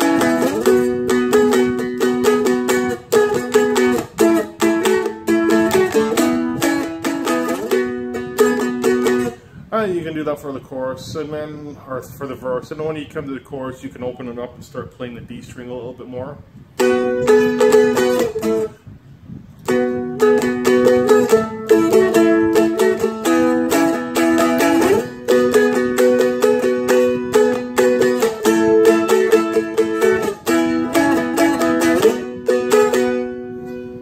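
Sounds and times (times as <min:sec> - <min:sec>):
dulcimer-style instrument strummed: 0:00.0 - 0:09.4, 0:16.8 - 0:18.7, 0:19.7 - 0:33.9.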